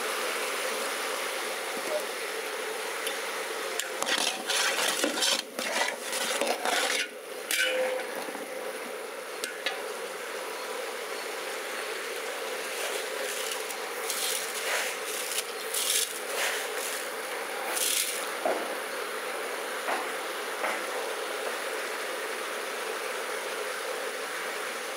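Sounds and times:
steady hiss: 0.0s - 24.9s
metal stirrer scraping in pot: 3.8s - 8.3s.

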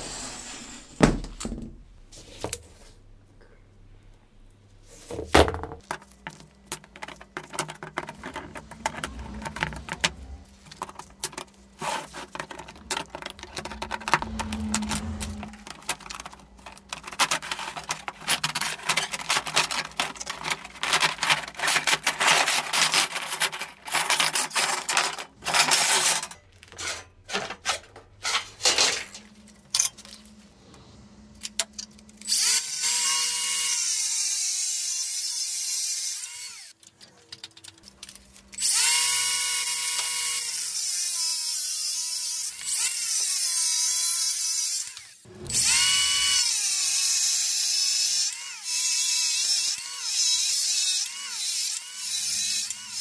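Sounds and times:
power tool grinding metal: 38.6s - 53.0s.

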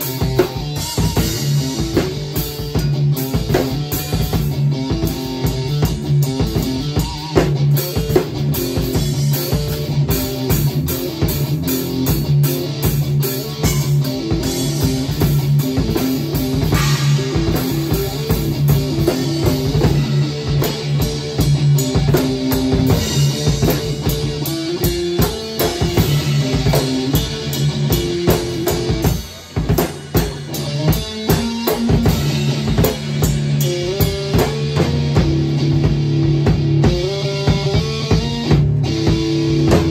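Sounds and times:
drum kit playing: 0.0s - 39.9s
electric guitar playing: 0.0s - 39.9s.

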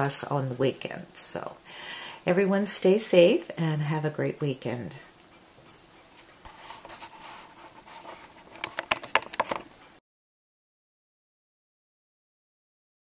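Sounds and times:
rustling on a tabletop: 5.6s - 9.8s
sharp clicks and knocks: 8.5s - 9.8s.

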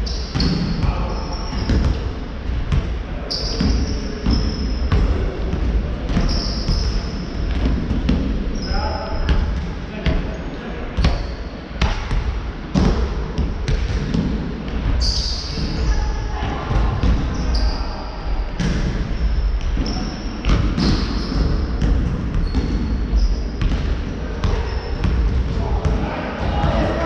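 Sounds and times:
sneaker squeaks: 0.0s - 2.0s, 3.3s - 5.1s, 6.1s - 7.7s, 8.5s - 11.6s, 14.9s - 25.4s
basketball bouncing on wooden floor: 19.8s - 25.4s.

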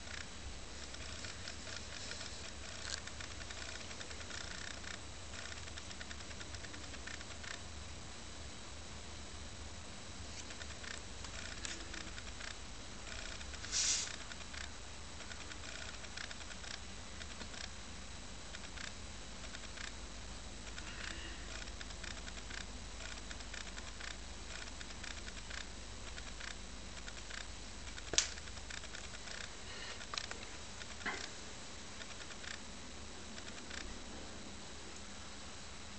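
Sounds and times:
faint hiss: 13.5s - 14.6s
sharp click: 27.3s - 29.5s.

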